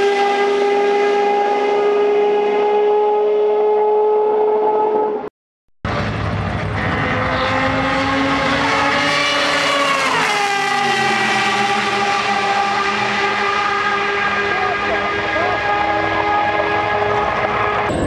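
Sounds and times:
racing engine running hard: 5.9 - 18.0.

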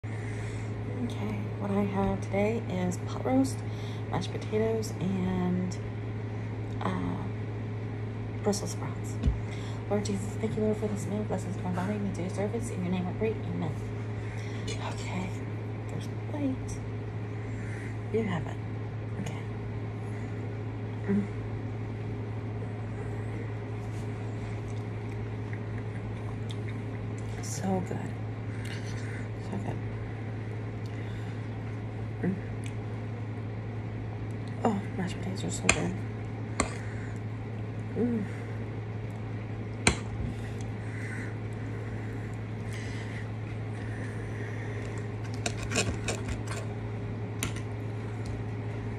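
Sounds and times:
steady low hum: 0.0 - 48.9
person humming: 21.0 - 21.4, 37.9 - 38.5.

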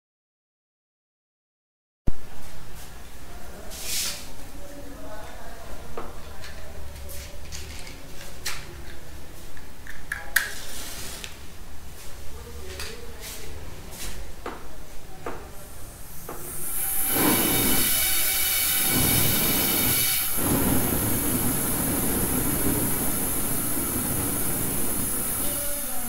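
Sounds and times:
pulse jet engine roaring: 16.6 - 26.0.

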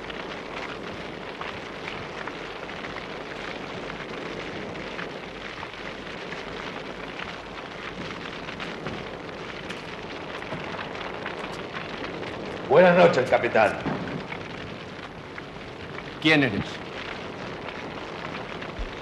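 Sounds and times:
fire crackling: 0.0 - 19.0
large fire burning: 0.0 - 19.0.

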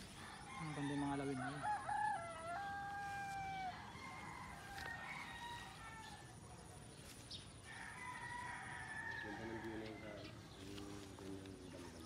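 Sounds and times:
rooster crowing: 0.2 - 6.4, 7.7 - 10.3
faint distant crowing: 7.6 - 10.6.

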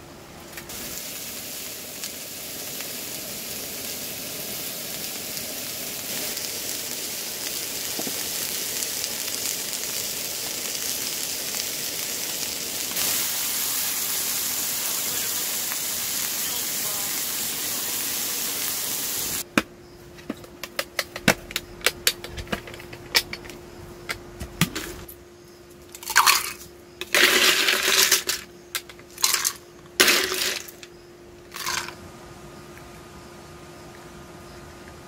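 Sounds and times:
short hissing bursts: 0.7 - 19.4
faint steady hum: 19.4 - 35.0.

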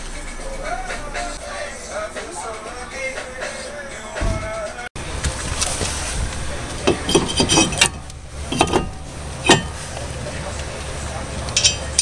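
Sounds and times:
metal clinks and knocks: 6.8 - 9.8, 11.5 - 12.0.

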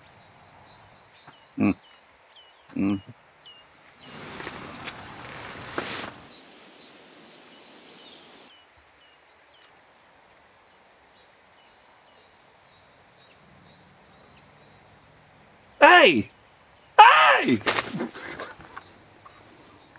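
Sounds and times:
small birds chirping: 0.0 - 19.9
hiss-like noise: 3.3 - 14.4.

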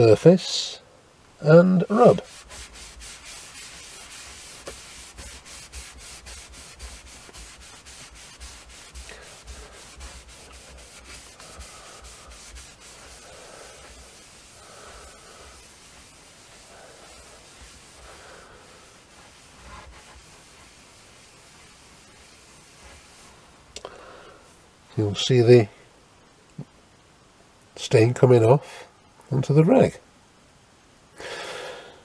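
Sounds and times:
cloth rag rubbing powder: 1.6 - 23.7.

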